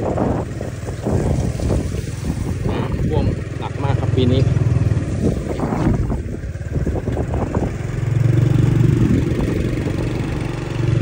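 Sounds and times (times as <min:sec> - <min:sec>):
small motorcycle engine running: 0:00.0 - 0:11.0.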